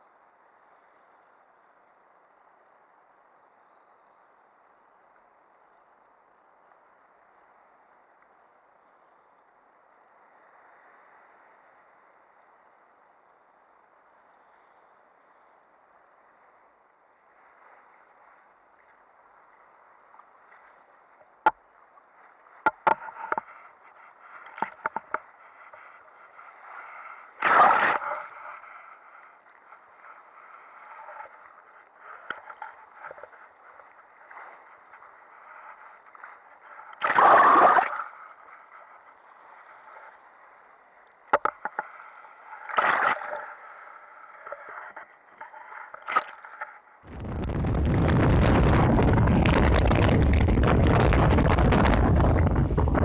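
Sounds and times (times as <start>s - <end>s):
water rushing along a hull: 0.1s - 53.0s
waves slapping and splashing: 42.1s - 53.0s.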